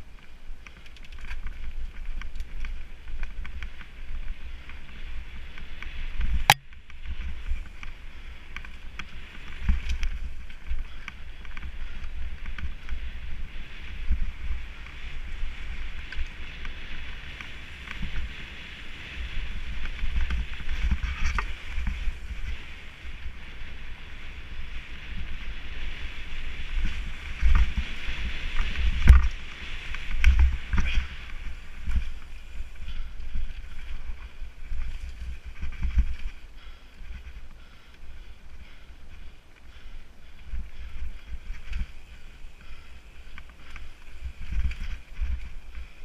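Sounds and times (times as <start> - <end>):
bike knocking and rattling: 0.1 - 23.4, 24.5 - 46.0
wind buffeting microphone: 1.4 - 46.0.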